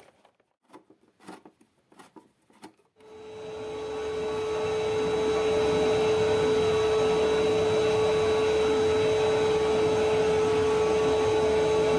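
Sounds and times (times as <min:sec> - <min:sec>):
vacuum cleaner running: 0:03.0 - 0:11.9.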